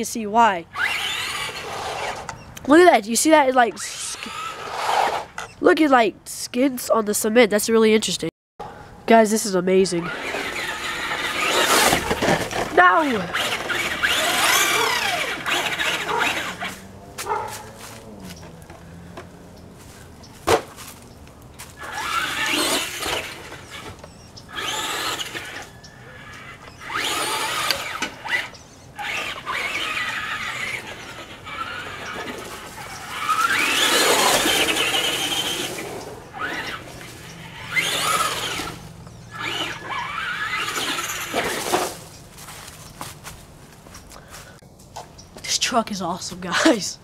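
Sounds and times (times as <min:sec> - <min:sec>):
electric motor whining: 0:00.7 - 0:02.6, 0:10.0 - 0:19.5, 0:21.7 - 0:41.9.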